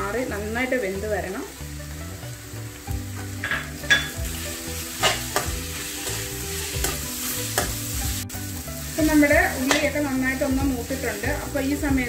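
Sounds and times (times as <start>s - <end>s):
onions sizzling in hot oil: 0.0s - 12.0s
spatula scraping and knocking pan: 3.4s - 8.3s.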